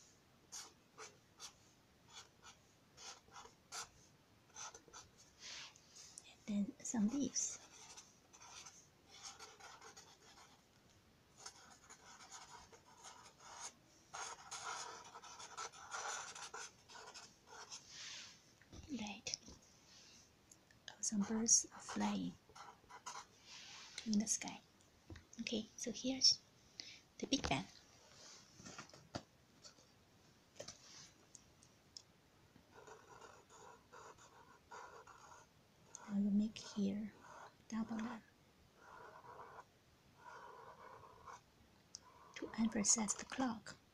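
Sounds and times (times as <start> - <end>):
marker scratching on paper: 0.5 - 3.9, 4.5 - 5.7, 6.9 - 10.6, 11.4 - 18.2, 21.0 - 23.3, 32.7 - 38.2, 38.8 - 41.4, 42.0 - 43.4.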